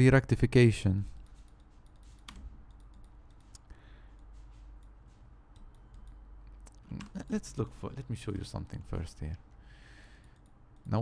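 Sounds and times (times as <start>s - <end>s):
computer mouse clicks: 1.2s - 7.3s, 10.2s - 11.0s.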